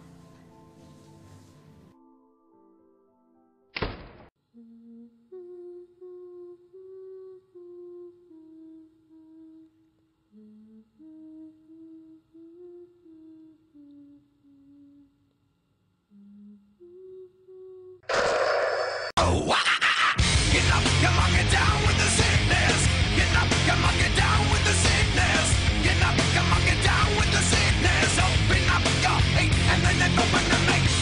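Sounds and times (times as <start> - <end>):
woman humming softly: 4.4 - 18.1.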